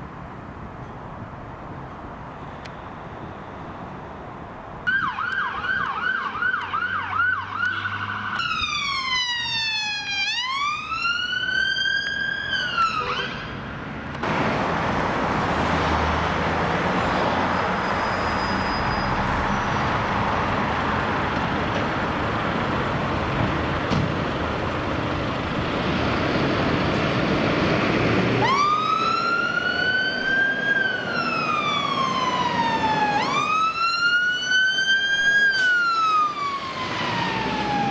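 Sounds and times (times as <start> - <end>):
vehicle engine and road noise: 0.0 - 37.9
fire engine siren wailing: 4.8 - 13.5, 27.3 - 37.9
electronic siren: 28.4 - 37.9.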